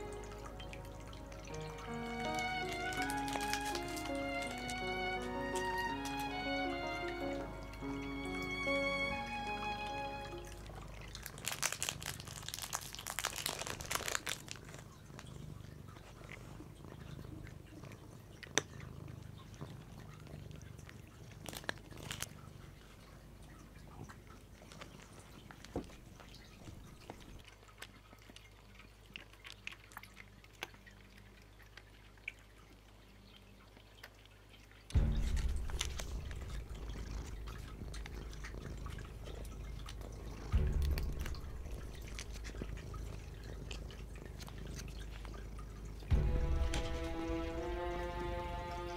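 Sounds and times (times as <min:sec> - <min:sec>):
low steady hum: 0:00.0 - 0:17.4, 0:34.9 - 0:48.9
cats chewing and licking: 0:00.0 - 0:48.9.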